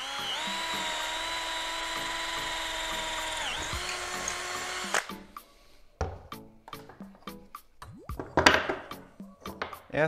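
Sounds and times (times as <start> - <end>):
drill motor whining: 0.0 - 5.2.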